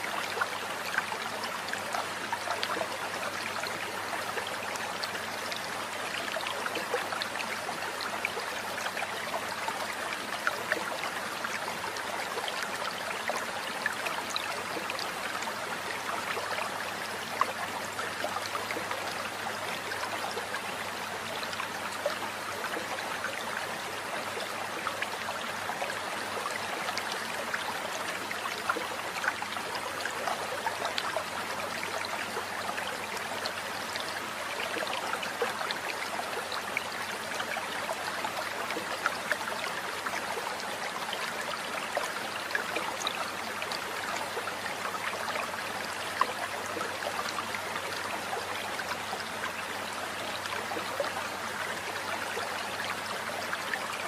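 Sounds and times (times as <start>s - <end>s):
water babbling: 0.0s - 54.0s.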